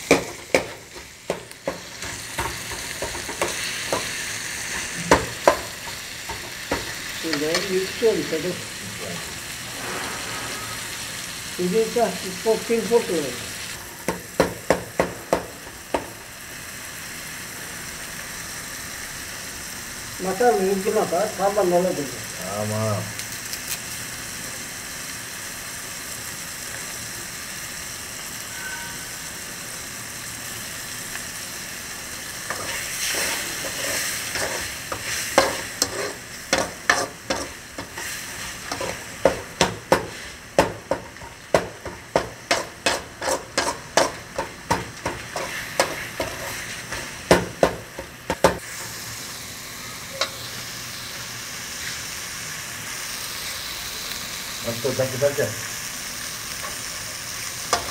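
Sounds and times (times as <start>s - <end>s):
onions and tomatoes sizzling: 0.0s - 57.9s
steel ladle scraping pan: 9.7s - 11.3s, 28.5s - 29.1s, 32.5s - 39.0s, 42.5s - 44.2s.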